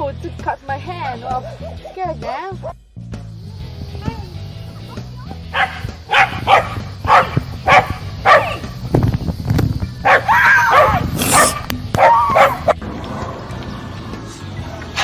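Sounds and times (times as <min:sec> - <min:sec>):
dog barking: 0:05.5 - 0:08.7, 0:10.0 - 0:12.8.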